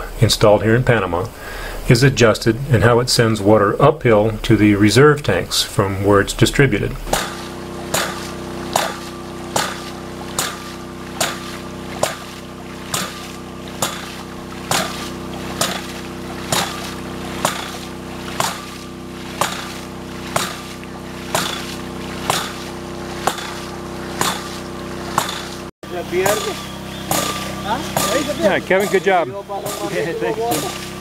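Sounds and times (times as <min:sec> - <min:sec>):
water splashing: 0:04.0 - 0:31.0
pump valve slamming shut: 0:07.0 - 0:31.0.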